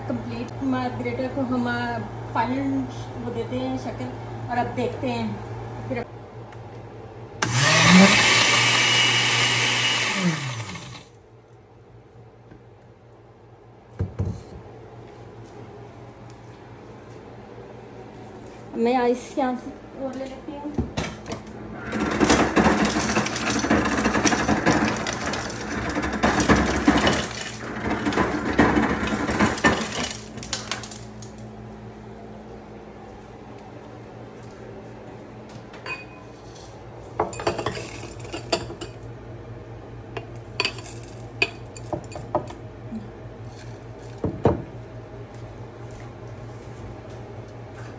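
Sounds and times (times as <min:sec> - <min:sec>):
blender motor running: 0:07.4 - 0:11.2, 0:21.8 - 0:30.4
steady low hum: 0:30.0 - 0:47.9.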